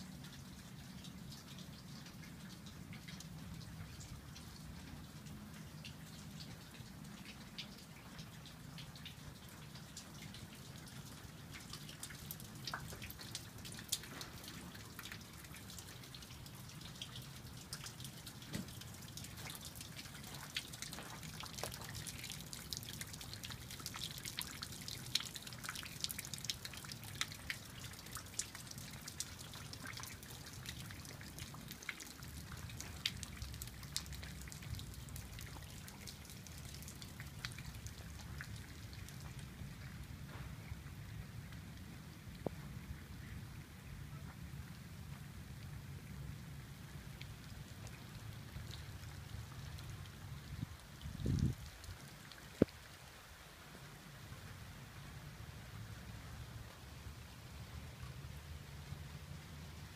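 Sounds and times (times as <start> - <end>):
raindrops tapping: 0.1 - 40.8.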